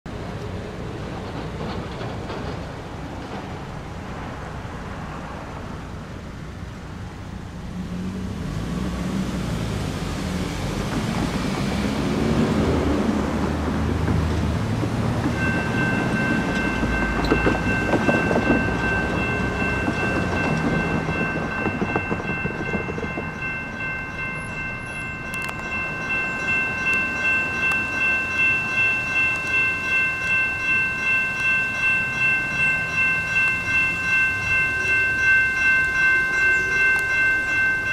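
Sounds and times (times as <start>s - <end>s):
crossing warning bells ringing: 10.2s - 37.9s.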